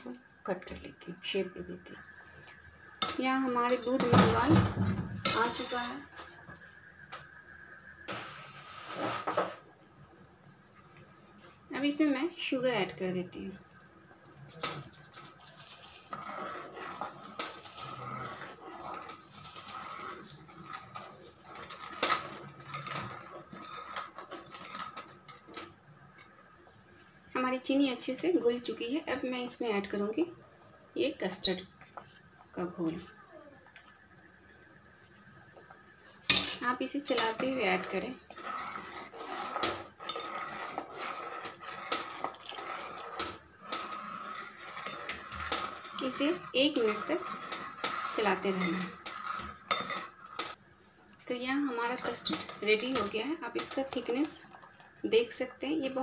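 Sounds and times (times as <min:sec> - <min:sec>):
spoon scraping metal pot: 0:05.2 - 0:06.0, 0:36.3 - 0:50.5.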